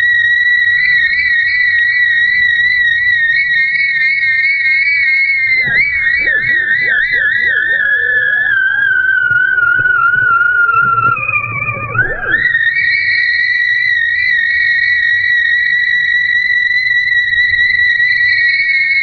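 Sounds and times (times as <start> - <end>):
kite rig whistling in wind: 1.6 - 19.0
faint warbling tones: 5.4 - 12.7.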